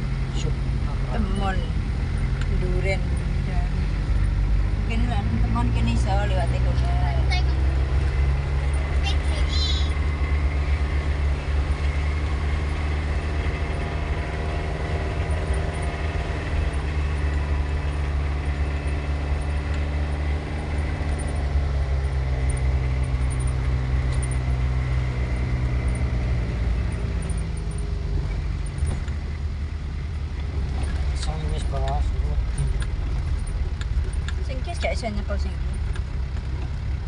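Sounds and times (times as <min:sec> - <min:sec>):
car engine drone: 0:00.0 - 0:37.0
road noise: 0:00.0 - 0:37.0.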